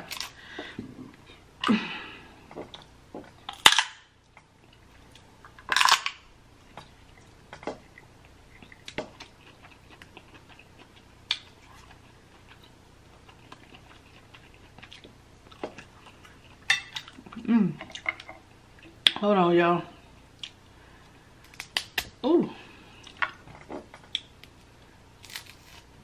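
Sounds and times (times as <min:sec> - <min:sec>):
crab shells cracking: 0:21.4 - 0:22.1, 0:25.2 - 0:25.8.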